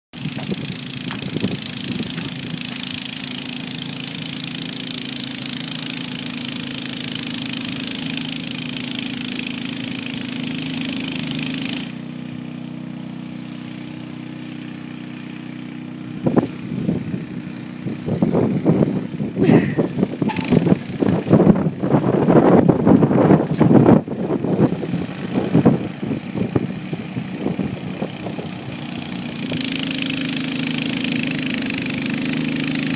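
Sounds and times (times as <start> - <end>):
snowblower engine running: 0.1 - 32.9
gusty rumbling: 0.2 - 2.6, 16.2 - 28.9
hiss of thrown snow: 16.2 - 18.1.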